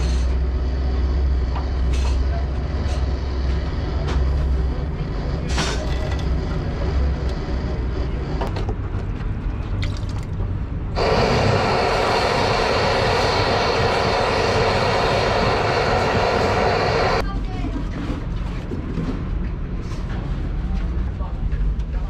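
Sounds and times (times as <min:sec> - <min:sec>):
low rumble: 0:10.3 - 0:17.2
forge blower rushing air: 0:10.9 - 0:17.2.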